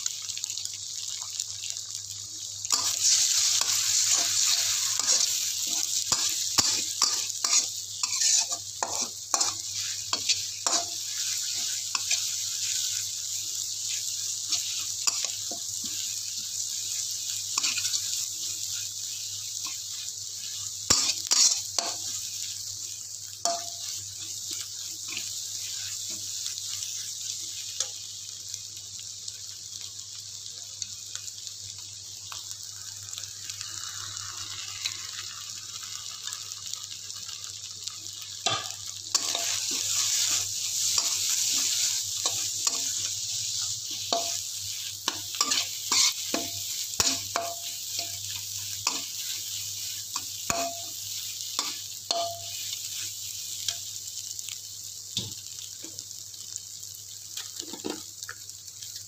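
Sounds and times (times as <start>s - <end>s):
food sizzling in hot oil: 0.0s - 59.0s
metal spatula scraping wok: 2.7s - 12.9s, 20.5s - 22.3s, 38.5s - 51.0s.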